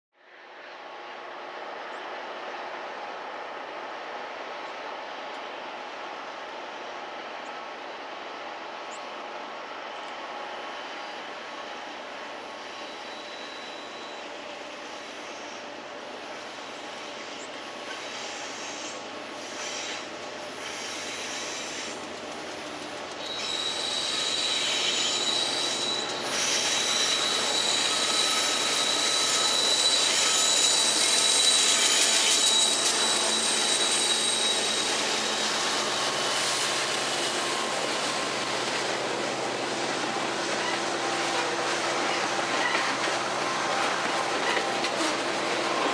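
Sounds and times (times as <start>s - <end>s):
freight train passing: 0.2s - 45.9s
train wheels squealing: 10.2s - 45.9s.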